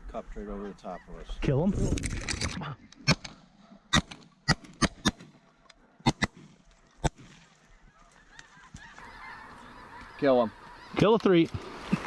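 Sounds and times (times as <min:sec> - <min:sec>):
shotgun blasts: 0:03.0 - 0:05.4
geese honking: 0:07.6 - 0:11.4.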